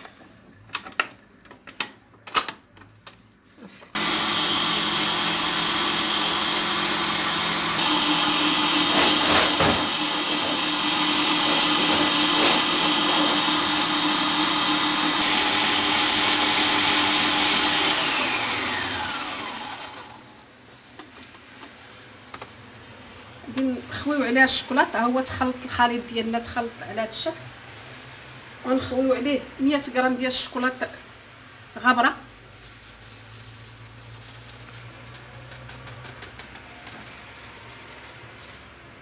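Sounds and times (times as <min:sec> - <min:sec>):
stand mixer motor whine: 0:04.0 - 0:20.4.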